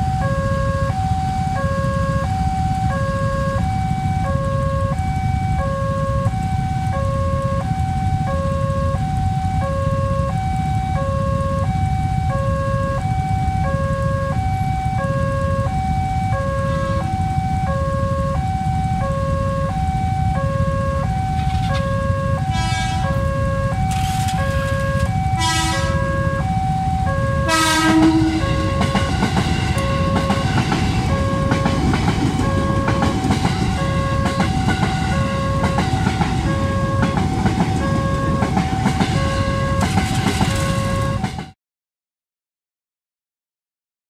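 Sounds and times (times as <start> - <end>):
electric train passing: 0.0 - 41.6
level-crossing warning bell: 0.0 - 41.6
train horn blasts: 16.3 - 18.4, 20.5 - 41.6.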